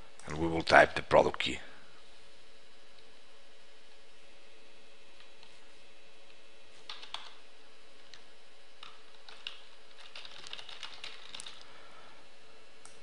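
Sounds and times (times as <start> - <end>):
typing on computer keyboard: 6.9 - 7.4, 8.8 - 11.6.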